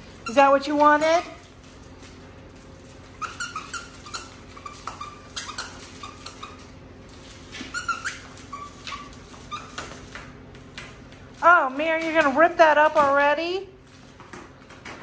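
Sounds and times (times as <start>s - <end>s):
squeaky dog toy squeaks: 3.2s - 6.6s, 7.7s - 9.9s.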